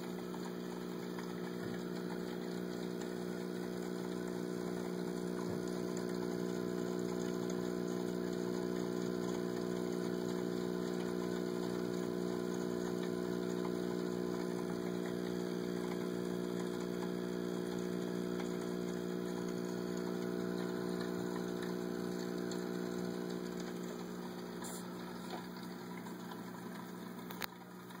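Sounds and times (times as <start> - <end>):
aquarium pump humming: 0.0 - 28.0
click: 27.3 - 27.6.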